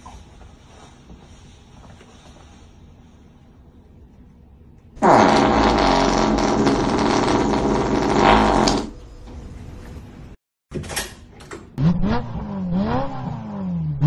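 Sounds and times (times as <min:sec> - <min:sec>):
long loud fart: 0:05.0 - 0:09.0.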